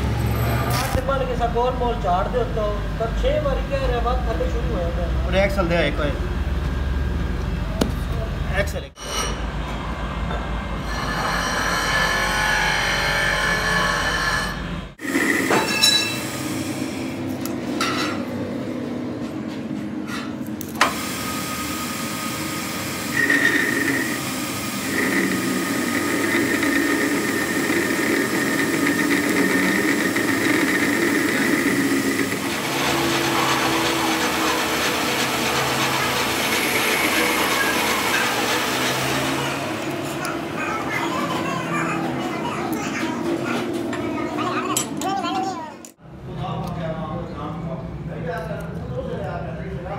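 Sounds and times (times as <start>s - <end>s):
high squeal of cutting tool: 10.8s - 16.4s, 21.3s - 39.6s
metal lathe running: 10.8s - 17.0s, 20.8s - 40.1s.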